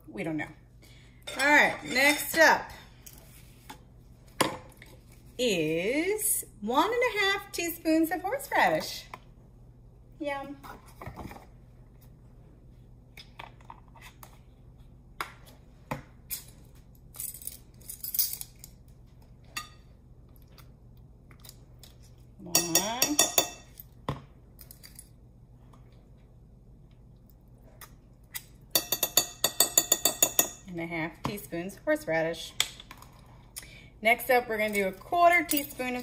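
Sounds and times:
metal spoon clinks: 0:22.6 - 0:23.7, 0:28.8 - 0:30.6.

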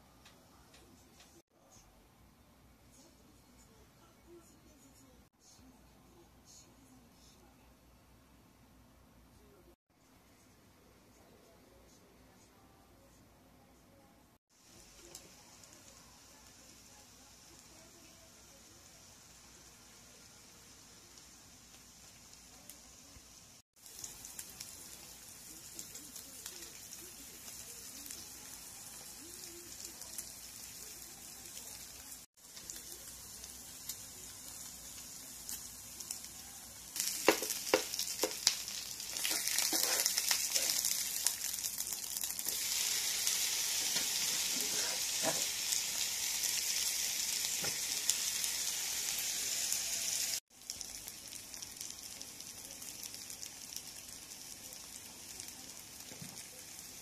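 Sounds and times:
food sizzling on a hot plate: 0:14.5 - 0:57.0.

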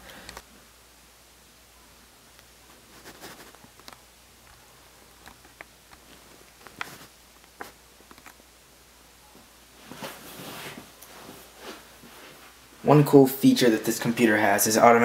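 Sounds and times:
faint sharp clicks and taps: 0:02.3 - 0:08.4
soft rustle: 0:02.6 - 0:08.2, 0:09.2 - 0:12.9.

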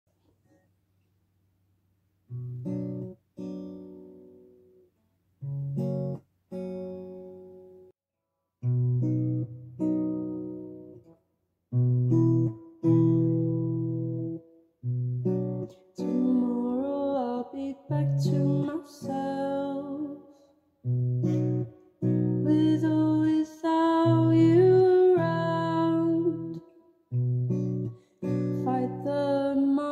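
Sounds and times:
acoustic guitar chords: 0:02.3 - 0:04.8, 0:08.6 - 0:11.1, 0:11.7 - 0:29.9
young man singing: 0:16.0 - 0:20.2.

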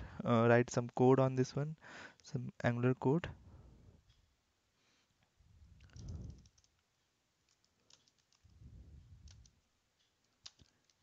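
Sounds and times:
faint keyboard keystrokes: 0:05.8 - 0:08.6, 0:09.2 - 0:11.0
soft low rumbles: 0:08.4 - 0:09.6.

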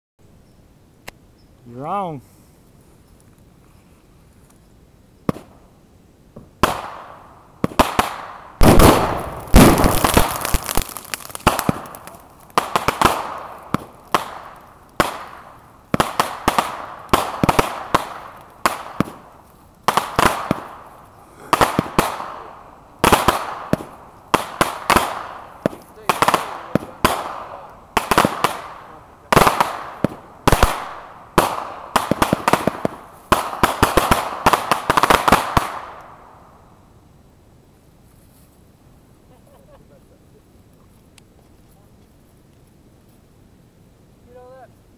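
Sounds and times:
fireworks bangs: 0:05.2 - 0:05.7, 0:06.3 - 0:36.2.

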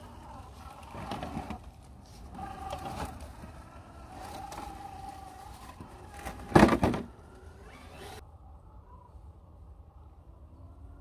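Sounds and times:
electric motor whining: 0:02.3 - 0:08.2.

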